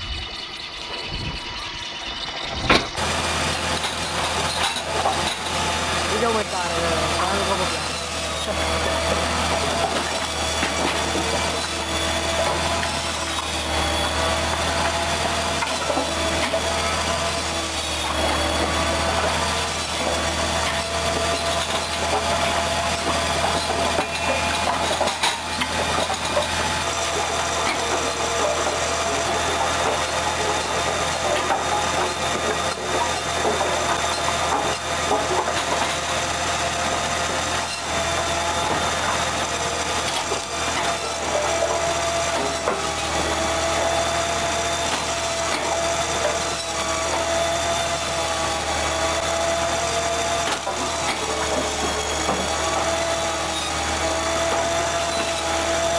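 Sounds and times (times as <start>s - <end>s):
motor humming: 0.0s - 55.9s
saw cutting logs: 0.0s - 55.9s
logs knocking against machine: 2.5s - 5.5s.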